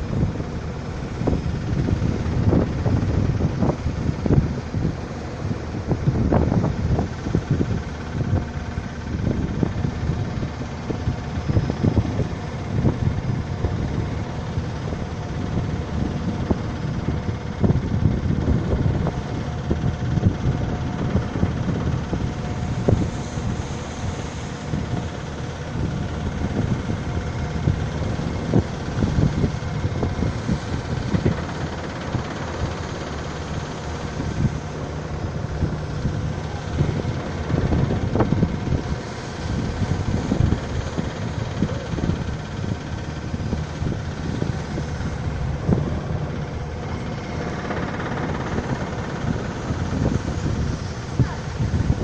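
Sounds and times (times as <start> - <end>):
sea rushing along hull: 0.0 - 52.0
wind buffeting microphone: 0.0 - 52.0.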